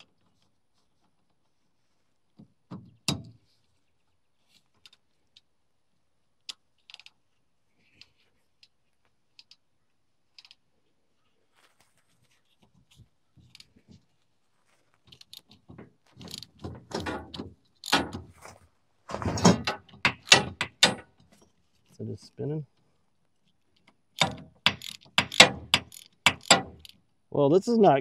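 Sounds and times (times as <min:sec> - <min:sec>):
socket ratchet clicking: 0:19.7 - 0:21.1, 0:24.2 - 0:27.0.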